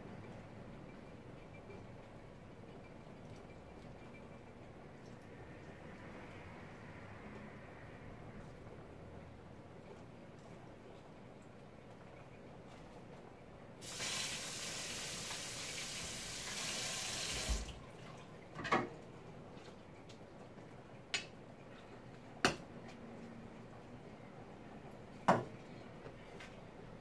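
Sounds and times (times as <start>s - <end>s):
kitchen tap running: 13.8s - 18.0s.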